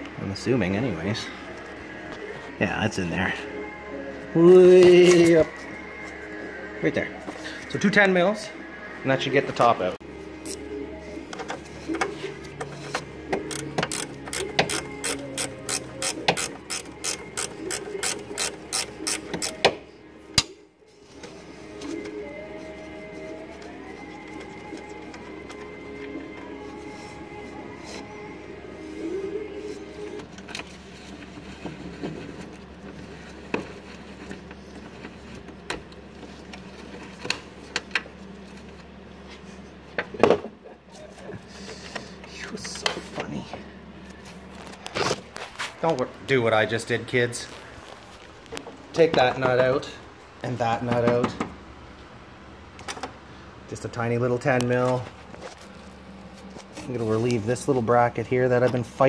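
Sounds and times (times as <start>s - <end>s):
ratchet wrench clicking: 13.5s - 19.6s.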